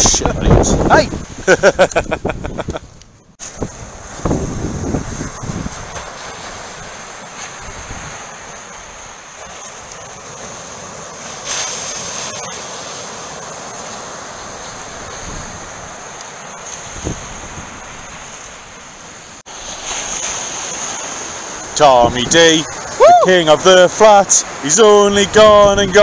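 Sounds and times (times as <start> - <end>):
wind buffeting microphone: 0.0 - 8.3, 14.5 - 16.0, 16.8 - 18.5, 25.0 - 26.0
surf breaking on beach: 3.4 - 26.0.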